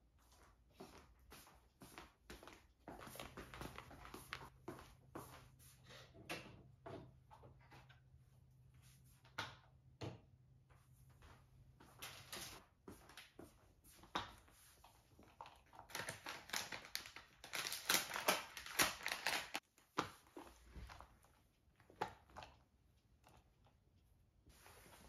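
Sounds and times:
floor mop scraping: 24.5s - 25.0s.

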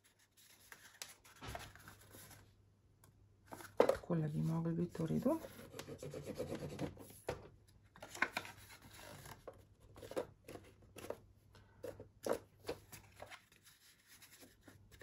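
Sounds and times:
paper rustling: 0.0s - 2.4s.

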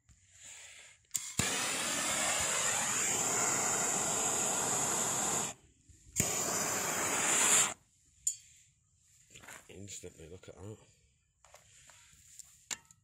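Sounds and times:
blowtorch ignition click: 1.1s - 5.6s, 6.2s - 7.8s
blowtorch flame hissing: 1.2s - 5.6s, 6.2s - 7.8s.

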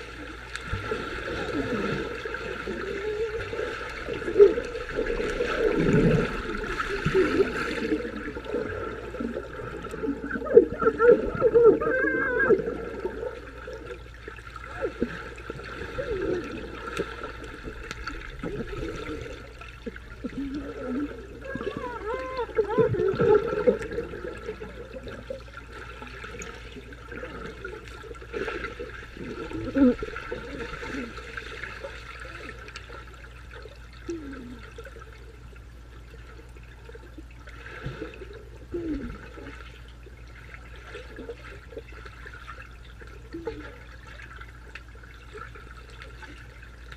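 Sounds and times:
water churning underwater: 0.0s - 46.9s.

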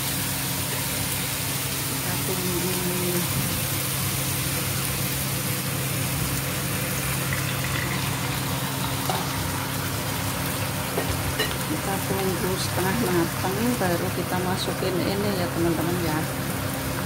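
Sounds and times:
water splashing into frying pan: 3.5s - 12.4s.

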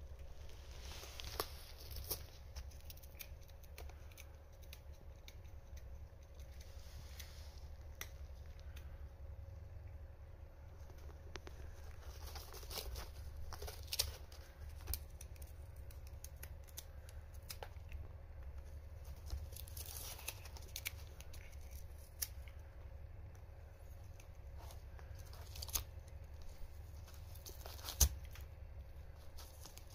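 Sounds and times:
cat ripping cardboard: 19.0s - 22.4s, 24.6s - 28.4s.

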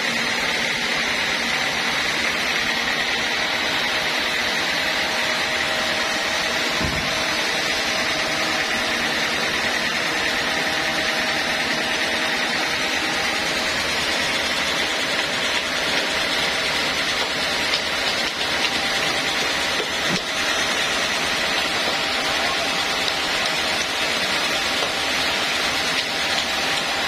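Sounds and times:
band sawmill running: 0.0s - 27.0s.

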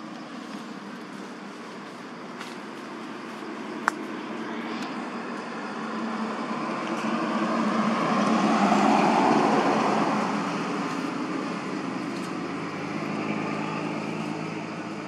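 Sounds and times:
vehicle passing by: 4.2s - 15.0s.

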